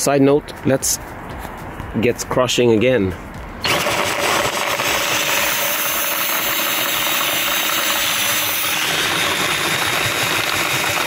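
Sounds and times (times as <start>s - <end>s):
cordless drill motor whirring: 3.6s - 11.0s
grain mill grinding: 3.6s - 11.0s.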